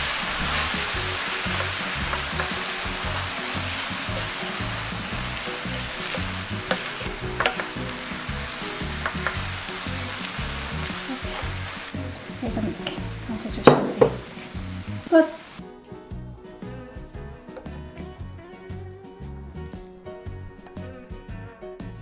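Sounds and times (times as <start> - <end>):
food sizzling in a frying pan: 0.0 - 15.6
spatula clicking against pan: 6.2 - 7.9, 9.0 - 9.4.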